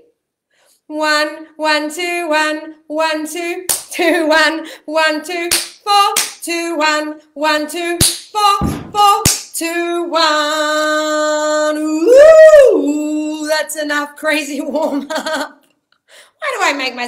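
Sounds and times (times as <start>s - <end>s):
woman singing vocal warm-up: 0.9s - 13.9s
hand claps: 5.5s - 6.4s, 8.0s - 8.3s, 9.2s - 9.6s
foot stamps on wooden floor: 8.6s - 9.1s.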